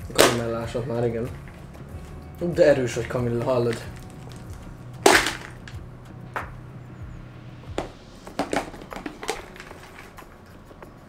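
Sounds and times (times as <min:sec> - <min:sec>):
popcorn rattling in cardboard cup: 0:02.9 - 0:05.7, 0:08.3 - 0:10.2.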